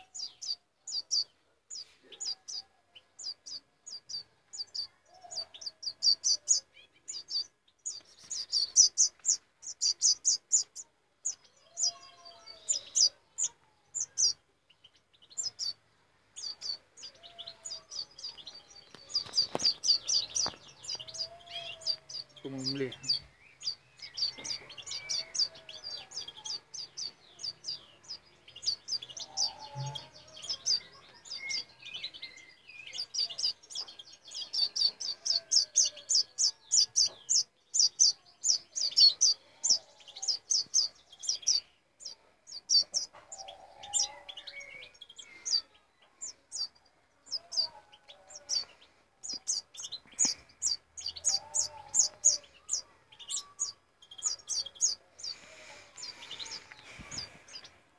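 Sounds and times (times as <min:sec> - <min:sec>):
faint low wavering calls: 0:16.4 - 0:28.1
fledgling bird begging chirps: 0:16.4 - 0:57.8.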